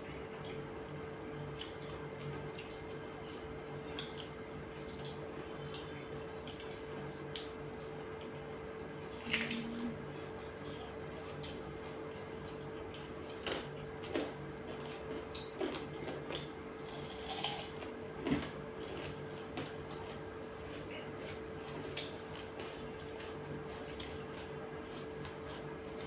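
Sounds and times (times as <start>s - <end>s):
steady hum: 0.0s - 26.0s
wet chewing and smacking: 0.3s - 26.0s
teeth crunching raw onion: 11.3s - 26.0s.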